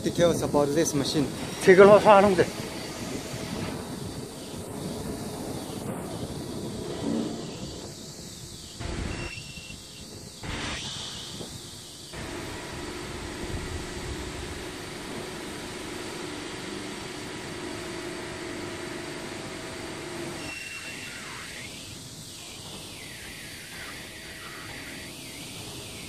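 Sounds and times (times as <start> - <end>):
broad hiss: 0.0 - 17.8, 20.4 - 26.0
machine hum: 0.0 - 26.0.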